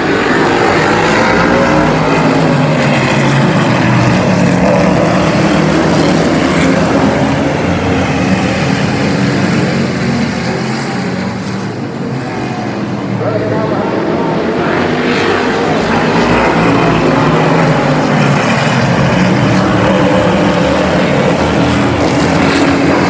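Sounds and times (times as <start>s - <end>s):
race engines at full throttle: 0.0s - 23.0s.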